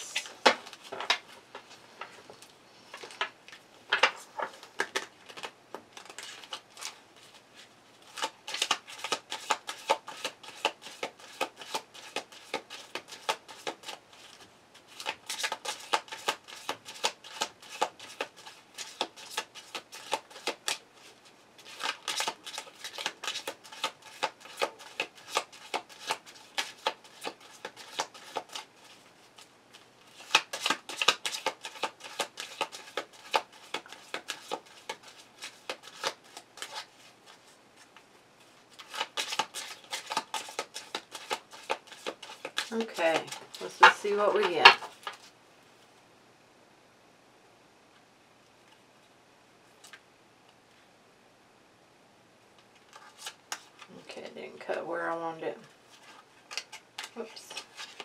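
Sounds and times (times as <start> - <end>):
cards being shuffled: 3.0 - 38.0, 38.7 - 45.3, 52.8 - 54.0, 55.9 - 58.0.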